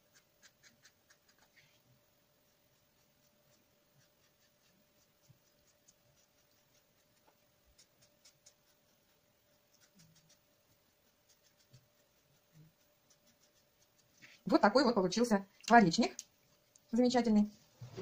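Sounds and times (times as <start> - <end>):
marker scratching on paper: 0.0 - 1.7, 3.0 - 14.4
faint steady hum: 0.0 - 18.0.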